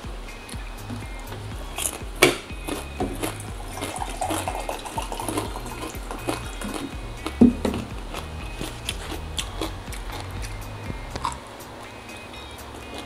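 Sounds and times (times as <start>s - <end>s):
drink pouring into cup: 3.8s - 6.6s.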